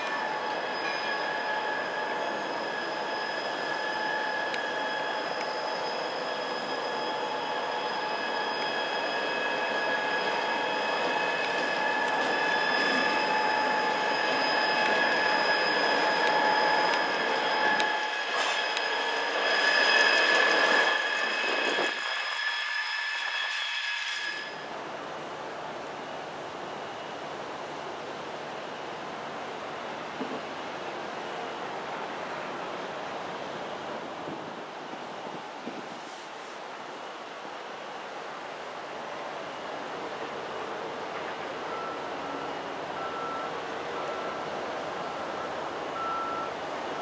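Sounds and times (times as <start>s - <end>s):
wheels squealing on rail: 0.0s - 24.8s, 30.2s - 47.0s
diesel locomotive engine rumble: 0.0s - 47.0s.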